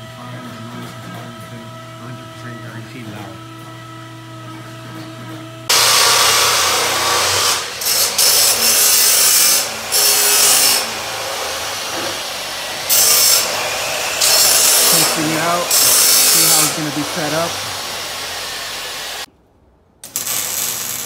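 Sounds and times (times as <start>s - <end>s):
power tool on steel pipe: 5.7s - 19.3s, 20.0s - 21.0s.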